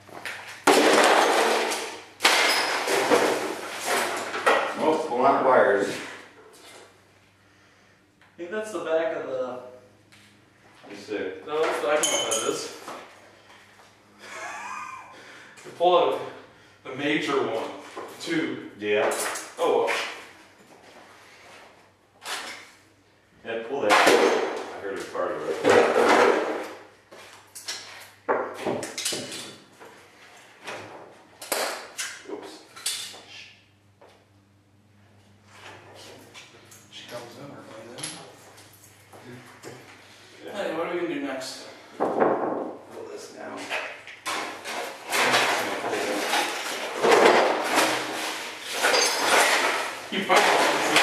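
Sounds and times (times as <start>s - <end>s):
metal and plastic debris crunching: 0.6s - 4.4s, 44.3s - 51.0s.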